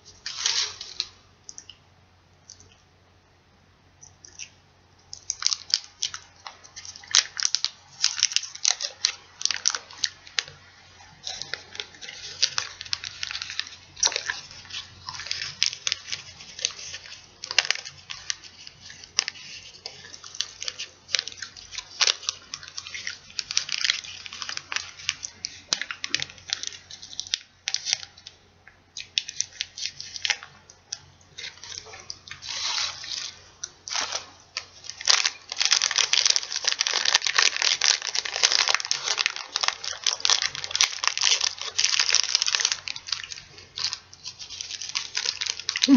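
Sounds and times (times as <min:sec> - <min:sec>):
candy wrappers crinkling and tearing: 0:00.0 - 0:01.2, 0:04.2 - 0:45.9.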